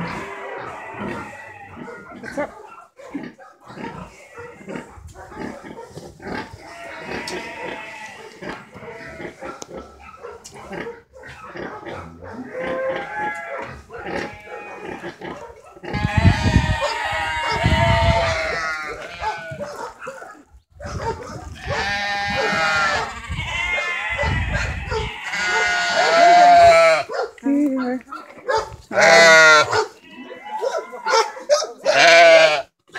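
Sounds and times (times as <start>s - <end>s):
young animals bleating: 0.0s - 2.5s, 6.3s - 9.4s, 12.4s - 19.7s, 21.4s - 28.0s, 28.9s - 32.8s.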